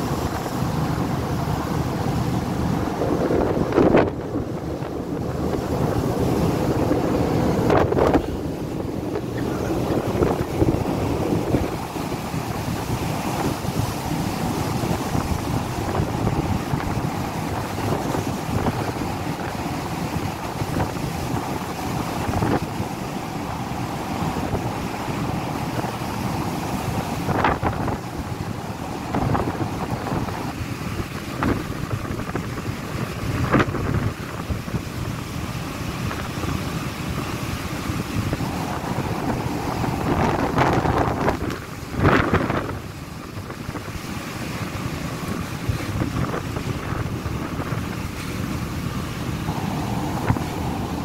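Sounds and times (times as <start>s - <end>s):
wind buffeting microphone: 0.0s - 51.0s.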